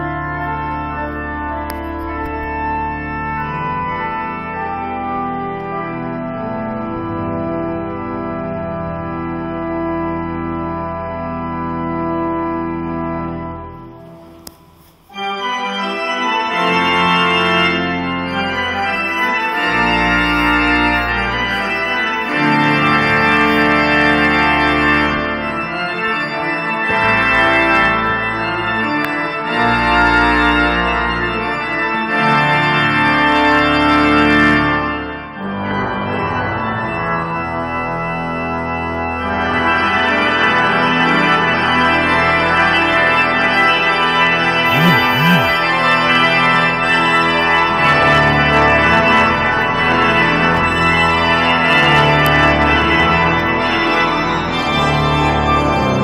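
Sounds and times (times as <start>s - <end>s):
pipe organ chords: 0.0s - 40.7s, 44.6s - 47.6s.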